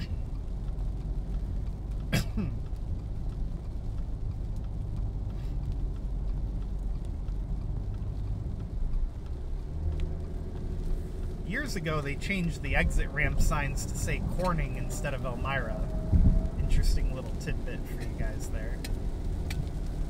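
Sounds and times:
tyre and engine rumble: 0:00.0 - 0:20.0
hiss of spray and rain: 0:09.1 - 0:20.0.

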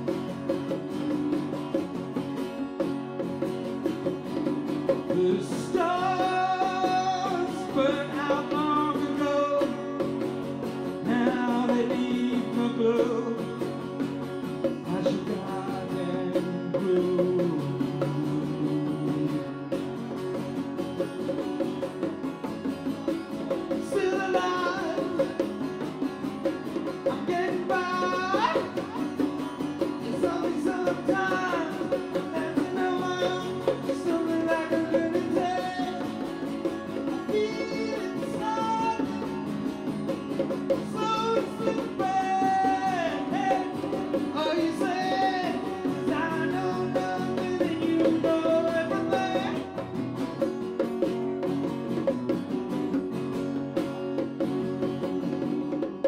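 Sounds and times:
hand drums: 0:00.0 - 0:56.0
strummed acoustic guitar: 0:00.0 - 0:56.0
man singing: 0:04.8 - 0:19.9, 0:23.7 - 0:26.0, 0:26.8 - 0:50.2.

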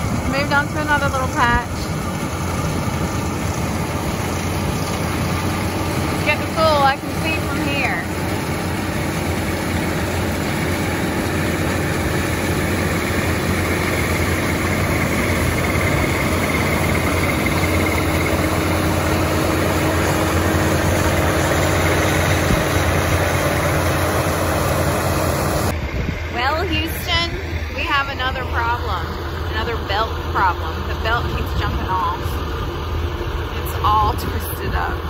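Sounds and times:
combine harvester engine drone: 0:00.0 - 0:35.0.

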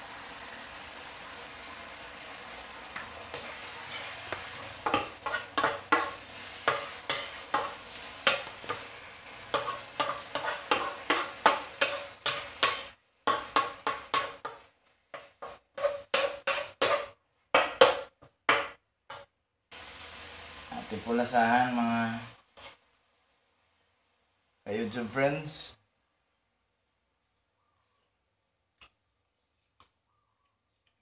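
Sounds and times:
light sizzle: 0:00.0 - 0:18.1, 0:19.1 - 0:27.4
metal turner scraping pan: 0:03.0 - 0:18.0, 0:22.5 - 0:22.8.

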